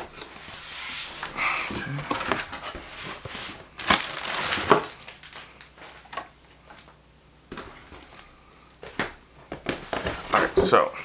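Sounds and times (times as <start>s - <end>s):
cardboard flaps scraping and rustling: 0.1s - 4.9s, 9.6s - 10.6s.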